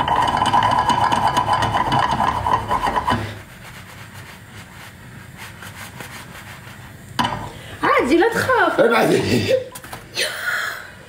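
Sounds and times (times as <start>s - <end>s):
small electric kitchen motor whining: 0.0s - 3.4s.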